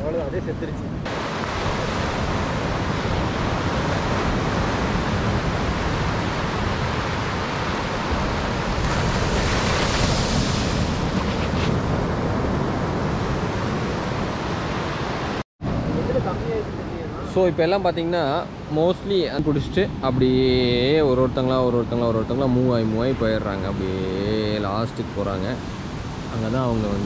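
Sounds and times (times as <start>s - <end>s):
wind on microphone: 0.0s - 16.0s
sea surf washing onto beach: 1.1s - 15.4s.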